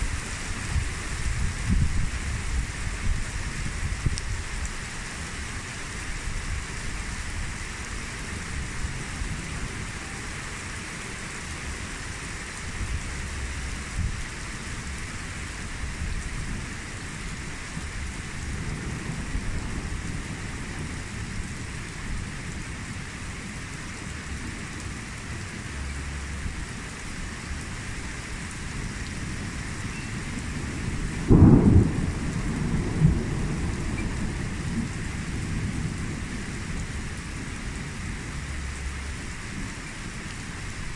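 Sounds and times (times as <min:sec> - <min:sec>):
rain pattering: 0:00.0 - 0:40.9
thunder clap: 0:31.2 - 0:35.8.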